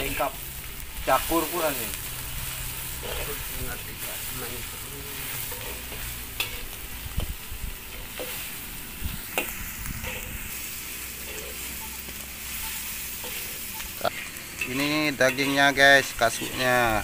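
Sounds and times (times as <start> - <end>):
onions and spices sizzling in wok: 0.0 - 17.0
metal turner scraping pan: 2.3 - 4.4, 5.2 - 17.0
turner clinking against wok: 11.2 - 17.0.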